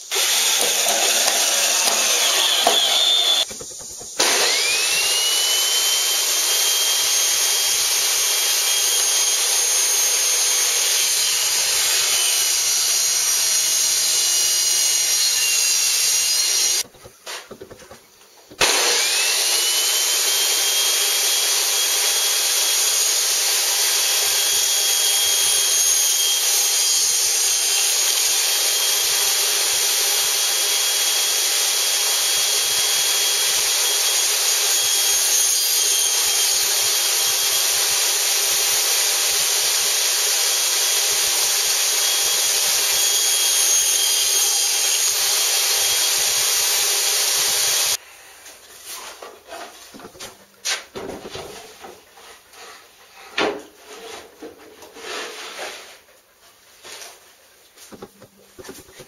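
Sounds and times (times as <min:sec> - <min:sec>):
table saw cutting wood: 0:00.0 - 0:16.9, 0:18.5 - 0:48.0.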